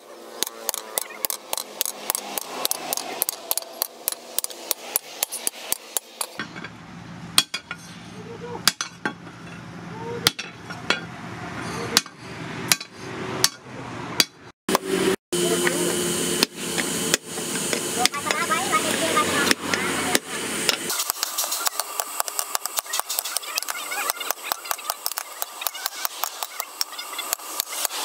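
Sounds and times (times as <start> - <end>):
hammer striking steel on anvil: 0.4 - 8.0, 8.6 - 9.6, 10.2 - 11.1, 11.9 - 14.4, 19.4 - 27.8.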